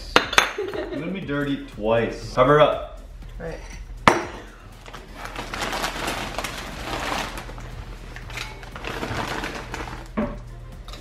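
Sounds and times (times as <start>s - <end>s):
crisp bag rustling: 4.8s - 10.2s.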